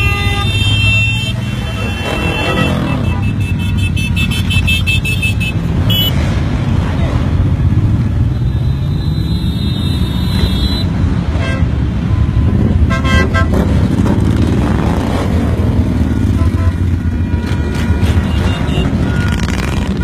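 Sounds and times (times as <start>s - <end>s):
car horns beeping: 0.0s - 6.2s, 8.4s - 11.8s, 12.4s - 13.8s, 16.2s - 20.0s
road traffic rumble: 0.0s - 20.0s.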